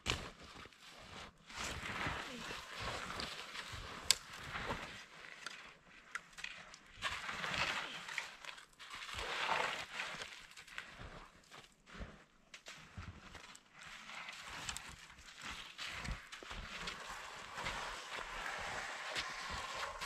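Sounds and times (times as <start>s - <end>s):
footsteps crunching in snow: 0.1s - 6.0s, 8.8s - 20.0s.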